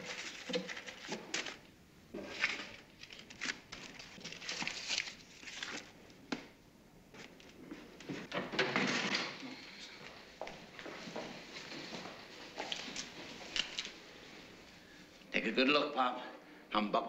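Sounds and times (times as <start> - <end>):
paper banknotes rustling: 2.3 - 6.0.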